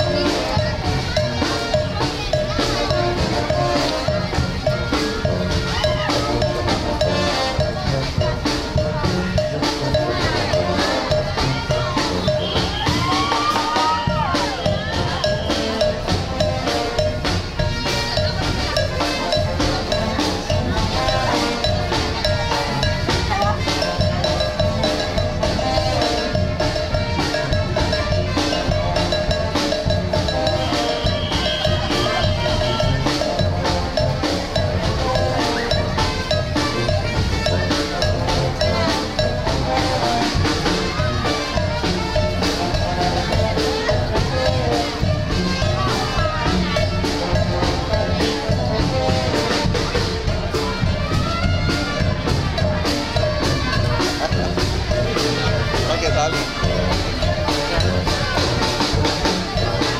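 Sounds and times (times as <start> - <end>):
upbeat music with drum beat: 0.0 - 59.9.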